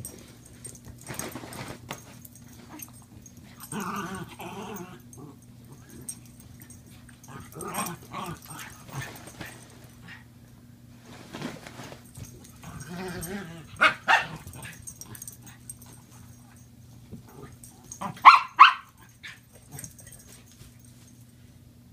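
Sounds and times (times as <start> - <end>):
small dogs barking: 12.8 - 15.6, 17.9 - 20.0.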